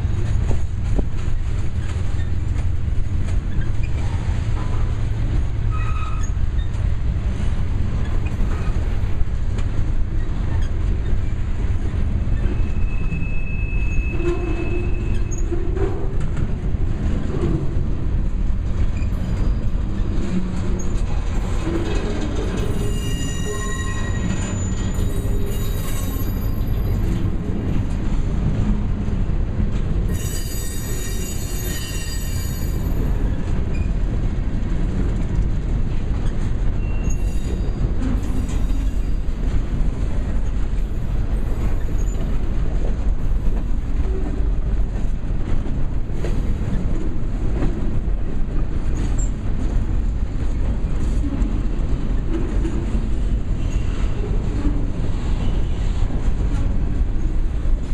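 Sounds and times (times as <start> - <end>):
train wheels rumbling on rails: 0.0 - 57.9
high-pitched wheel squeal: 5.7 - 6.8, 12.3 - 15.6, 22.7 - 27.0, 30.1 - 33.1, 36.8 - 39.2.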